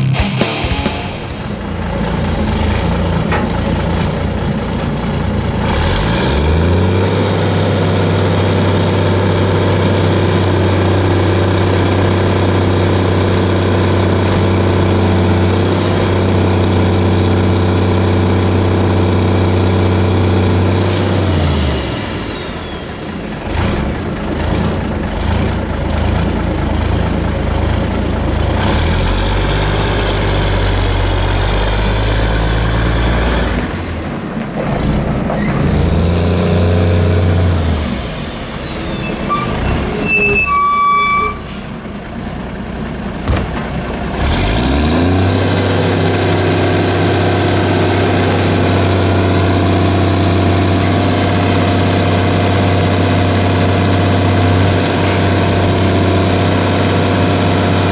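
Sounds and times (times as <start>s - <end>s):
garbage truck diesel engine: 0.0s - 57.9s
high squealing: 38.4s - 41.7s.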